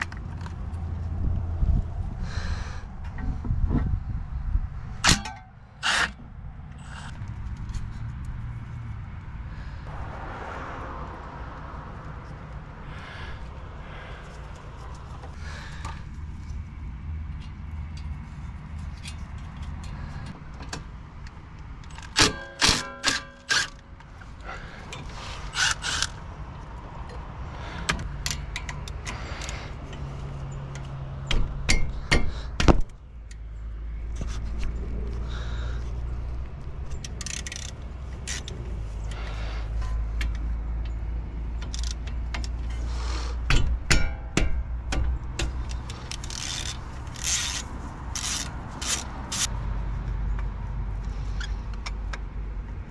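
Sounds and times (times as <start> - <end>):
steady low rumble: 0.0 - 21.7
metal clanks and knocks: 43.5 - 45.8.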